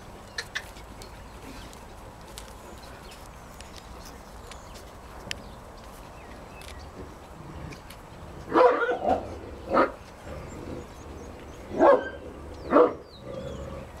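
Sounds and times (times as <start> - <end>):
deep dog barks: 8.5 - 10.0, 11.7 - 13.1.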